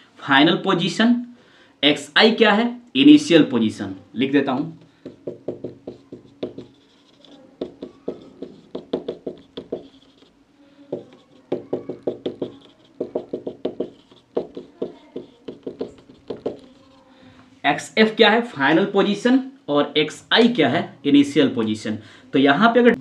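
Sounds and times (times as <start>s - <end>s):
marker writing on whiteboard: 4.5s - 17.2s.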